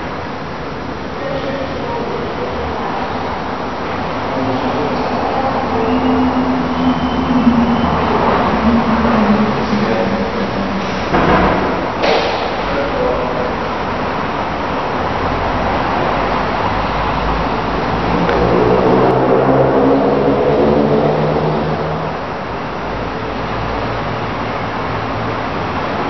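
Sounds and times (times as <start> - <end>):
road traffic noise: 0.0 - 26.0
engine rising in pitch: 3.6 - 12.0, 14.7 - 26.0.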